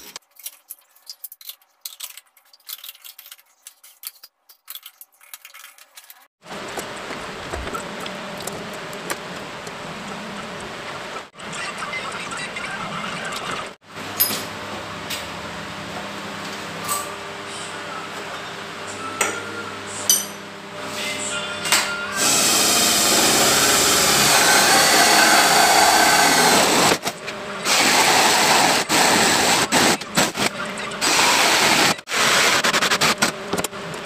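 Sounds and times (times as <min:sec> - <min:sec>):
drill boring into wood: 0:22.2 - 0:27.0.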